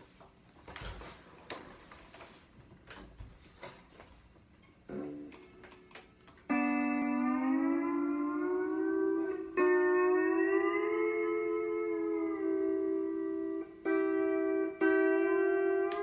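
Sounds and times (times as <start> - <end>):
pedal steel guitar chords: 4.8 - 5.7, 6.4 - 16.0.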